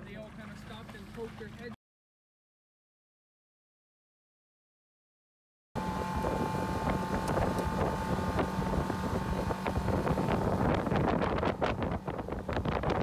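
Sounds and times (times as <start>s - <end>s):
outboard motor running: 0.0s - 1.8s, 5.8s - 13.0s
wind buffeting microphone: 5.8s - 13.0s.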